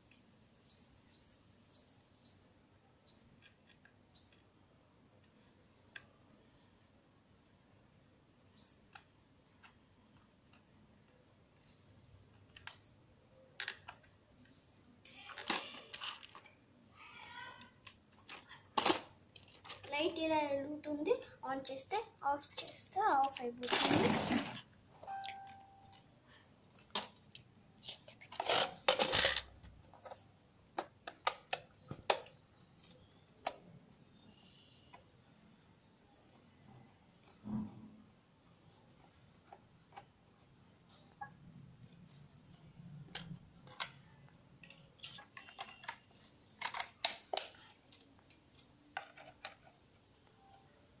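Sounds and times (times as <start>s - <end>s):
plastic toy clicks and knocks: 13.6s - 16.6s, 17.2s - 19.9s, 22.5s - 23.9s, 28.1s - 33.6s, 43.1s - 49.7s.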